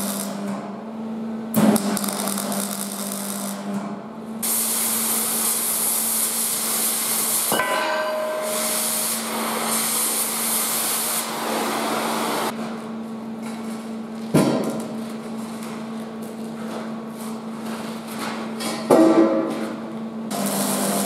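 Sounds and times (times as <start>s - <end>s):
plasma cutter hissing: 4.4s - 12.5s
metallic clank: 7.5s - 8.9s
heavy clank of steel stand: 7.6s - 8.8s.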